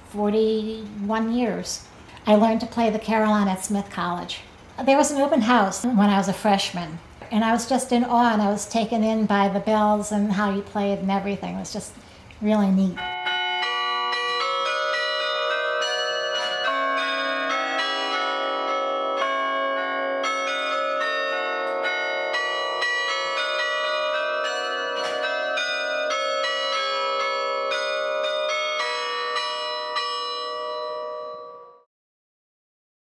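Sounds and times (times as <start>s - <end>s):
carillon bells playing a tune: 12.8s - 31.9s.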